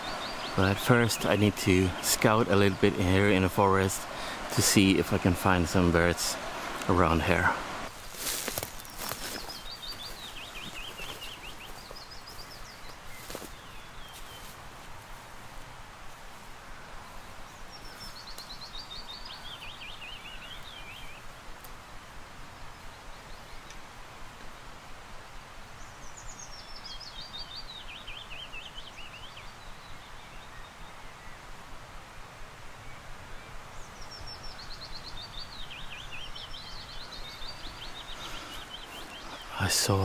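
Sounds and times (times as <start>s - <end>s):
bird singing: 0.0s - 14.5s, 17.1s - 21.4s, 25.7s - 31.5s, 32.8s - 40.0s
background hiss: 0.0s - 40.0s.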